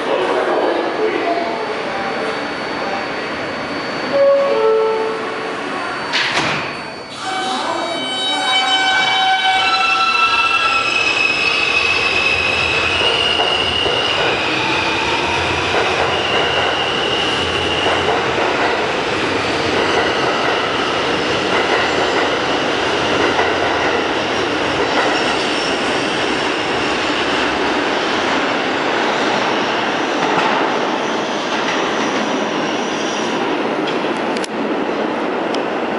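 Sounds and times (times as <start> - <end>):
train wheels rushing on rails: 8.8 - 35.9.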